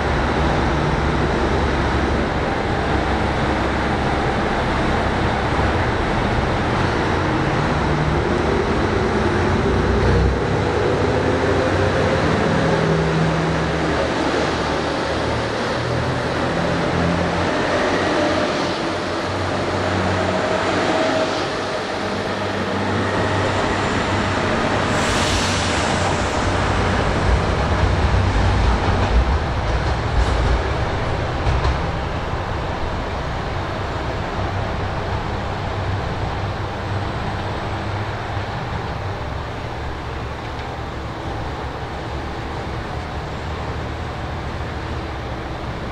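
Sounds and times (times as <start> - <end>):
train engines running: 0.0 - 45.9
train wheels rumbling on rails: 0.0 - 45.9.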